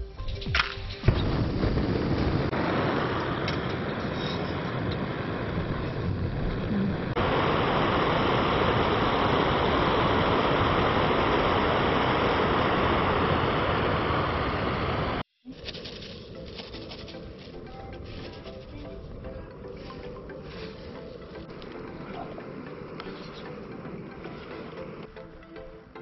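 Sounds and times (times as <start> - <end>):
gas stove roaring hiss: 1.0 - 15.3, 19.7 - 25.2.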